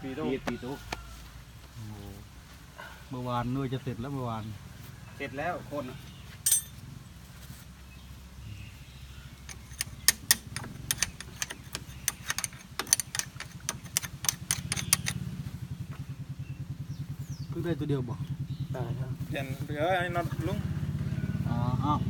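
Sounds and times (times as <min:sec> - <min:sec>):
metal tools clinking: 0:06.4 - 0:06.8, 0:09.4 - 0:15.2
engine idling: 0:06.5 - 0:22.0.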